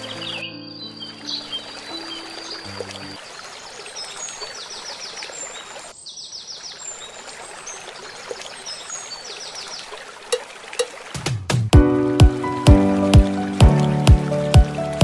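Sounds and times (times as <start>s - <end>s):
small birds chirping: 0.0s - 10.1s
water rushing over weir: 6.8s - 15.0s.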